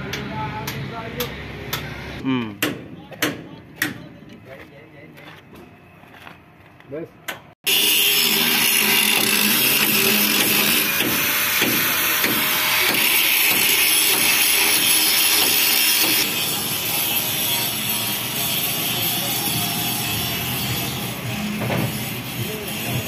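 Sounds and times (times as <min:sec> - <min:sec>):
angle grinder grinding steel: 0:07.7 - 0:23.0.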